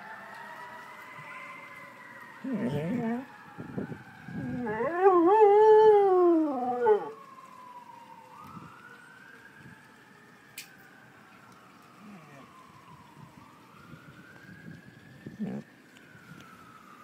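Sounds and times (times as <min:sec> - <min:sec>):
fire engine sirens wailing: 0:00.0 - 0:17.0
dog howling: 0:02.4 - 0:03.3, 0:04.4 - 0:07.2.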